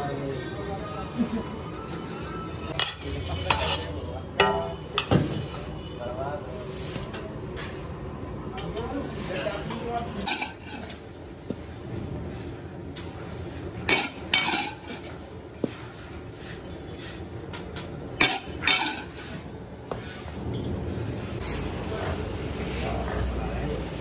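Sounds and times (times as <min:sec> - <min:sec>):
seeds scraping against iron pan: 0:02.8 - 0:04.1, 0:08.9 - 0:11.7, 0:18.2 - 0:20.3.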